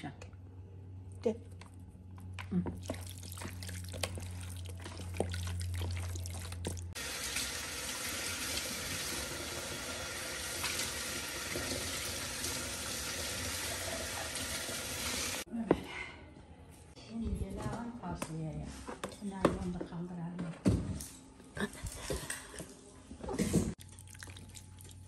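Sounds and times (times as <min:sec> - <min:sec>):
hands squishing raw chicken: 0:01.6 - 0:07.0.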